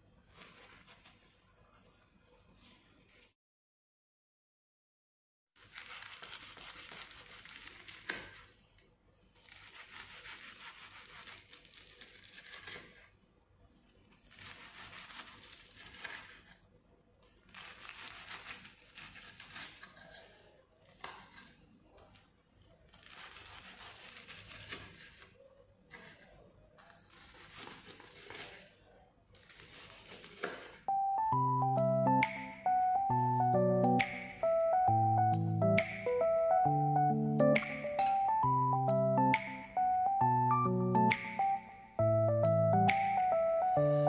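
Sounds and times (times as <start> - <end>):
knife cutting crispy fried cutlet: 9.4 - 13.1, 14.1 - 16.6, 22.8 - 25.3, 25.9 - 28.6, 29.4 - 30.8.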